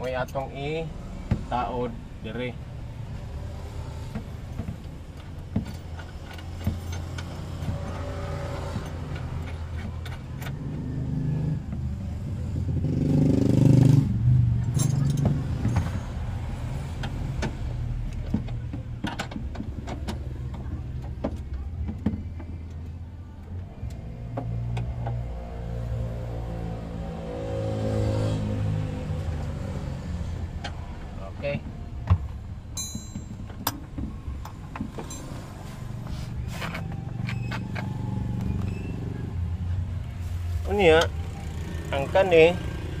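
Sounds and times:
passing vehicle rumble: 0.7s - 19.0s, 23.0s - 32.8s, 33.8s - 43.0s.

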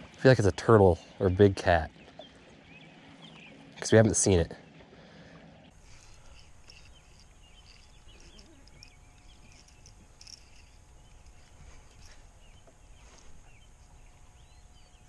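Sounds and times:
small birds chirping: 0.8s - 4.8s, 5.6s - 15.0s
low steady rumble: 5.0s - 15.0s.

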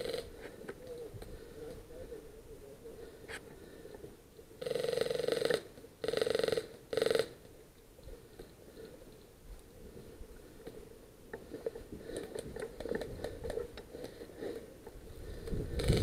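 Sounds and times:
airsoft rifle full-auto bursts: 0.0s - 0.3s, 4.6s - 7.4s.

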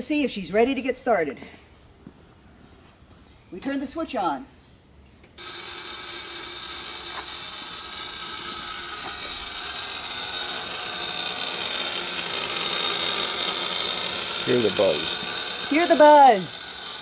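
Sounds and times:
ignition coils buzzing: 5.4s - 17.0s.

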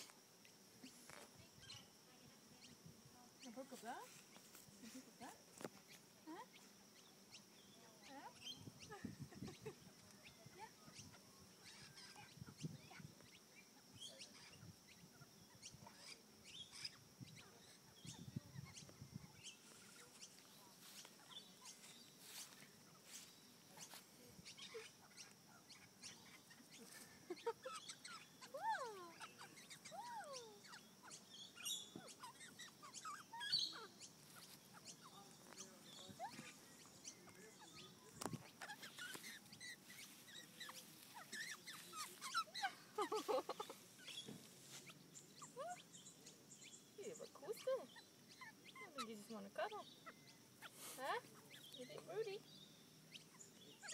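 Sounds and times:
quiet bird chirps and clicks: 5.5s - 28.6s, 29.2s - 53.9s
young magpie gliding calls: 38.5s - 45.9s.

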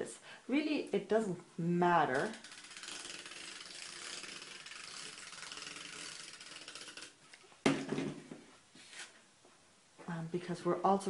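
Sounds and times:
tape runner ratcheting whir: 2.1s - 7.4s.

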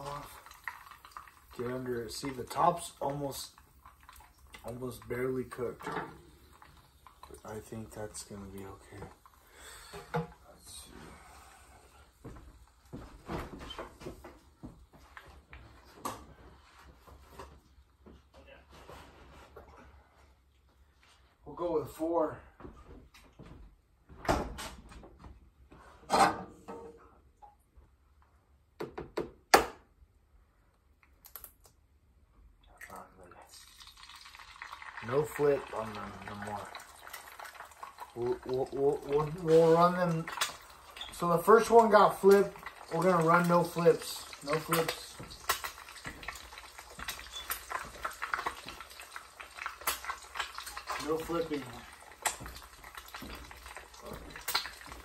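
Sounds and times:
fat crackling and popping: 0.0s - 10.8s, 31.0s - 31.8s, 33.0s - 55.0s
eggs frying in fat: 0.0s - 16.3s, 32.7s - 55.0s.

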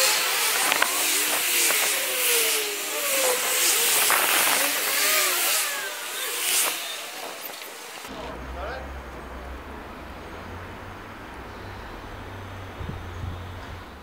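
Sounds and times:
motor running: 0.0s - 8.8s
loud rushing noise: 0.0s - 14.0s.

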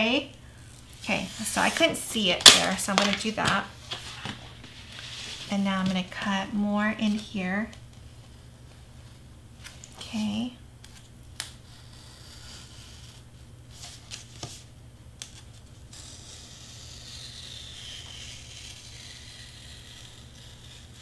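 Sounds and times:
knife scratching through foam board: 15.9s - 21.0s.

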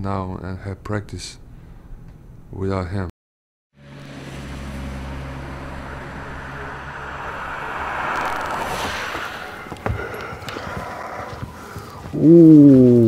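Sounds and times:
car passing on wet road: 3.8s - 11.6s
traffic hum: 3.8s - 12.2s.

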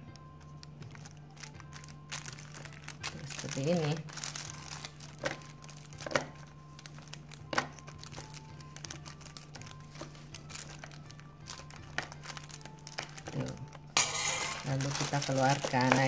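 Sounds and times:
plastic wrap crinkling: 0.1s - 16.0s
spoon scraping in foil tin: 12.0s - 16.0s.

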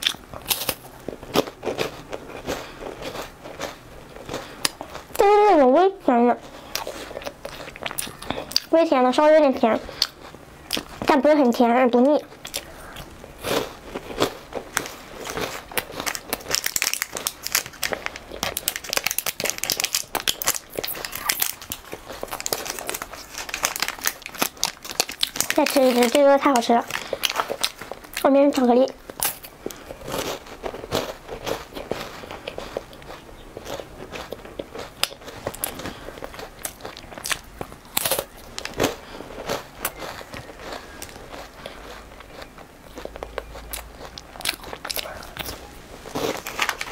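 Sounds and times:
chewing crunchy wafer bar: 0.0s - 46.9s
wrapper crinkling being torn open: 15.6s - 28.1s, 46.1s - 46.9s.

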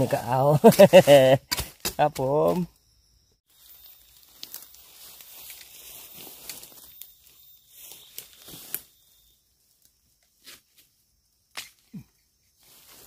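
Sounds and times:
bamboo shoot snapping: 4.2s - 4.7s, 11.5s - 12.0s.

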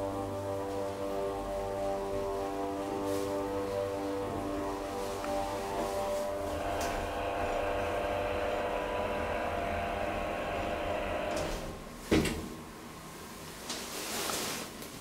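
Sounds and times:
elevator motor humming whine: 4.3s - 13.0s
elevator clunk: 6.4s - 12.6s.

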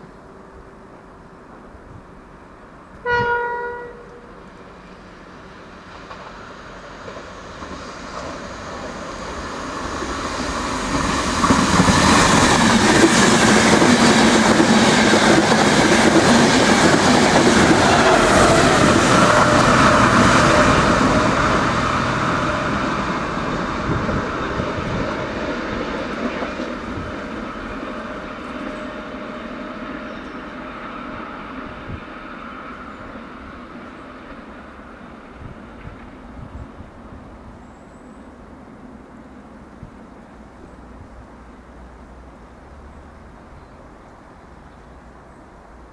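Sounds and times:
passenger train passing: 0.0s - 45.9s
wheel and rail noise: 0.0s - 45.9s
train horn blast: 3.0s - 4.5s.

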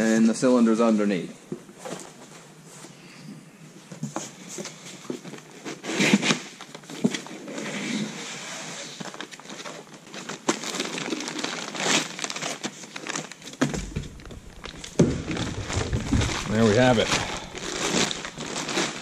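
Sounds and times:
cardboard rustling: 9.0s - 19.0s
plastic wrapping crinkling: 9.0s - 19.0s
handling knocks: 13.6s - 18.8s.

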